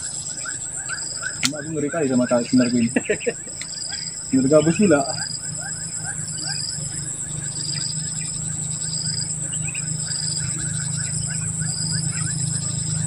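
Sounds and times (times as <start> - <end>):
insects high-pitched drone: 0.0 - 13.0
short high insect chirp: 0.0 - 13.0
steady low hum: 0.0 - 13.0.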